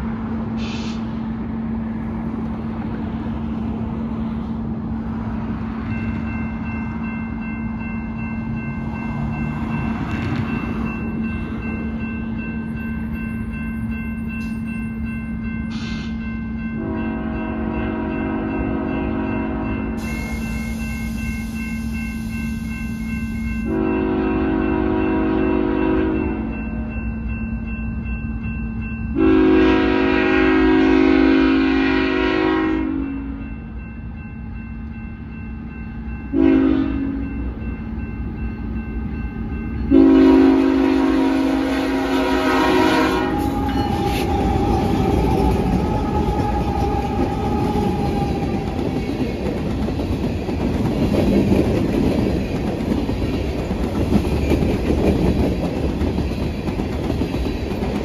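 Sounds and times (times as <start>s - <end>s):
locomotive air horn: 16.8s - 21.1s, 23.7s - 26.4s, 29.2s - 33.4s, 36.3s - 37.2s, 39.9s - 48.4s
train wheels clacking over rails: 42.3s - 58.0s.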